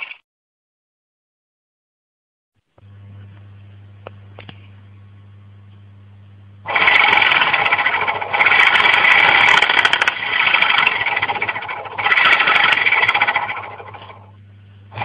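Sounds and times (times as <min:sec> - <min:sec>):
steady low hum: 0:02.6 - 0:15.0
small electric motor rattling buzz: 0:06.6 - 0:15.0.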